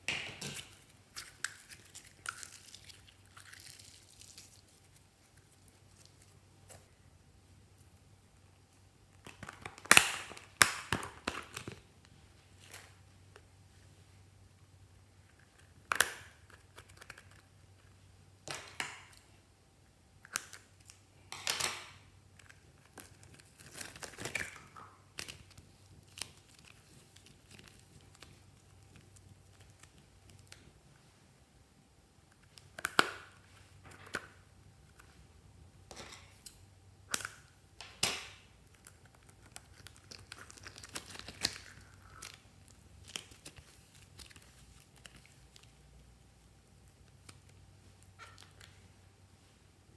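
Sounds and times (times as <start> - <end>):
slime crackling and squelching: 0.6 - 6.5, 38.5 - 48.9.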